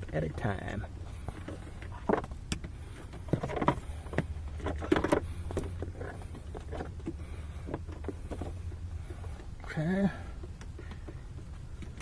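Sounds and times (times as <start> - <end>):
cable handling knocks and rubbing: 0.0 - 9.6
steady low hum: 0.0 - 12.0.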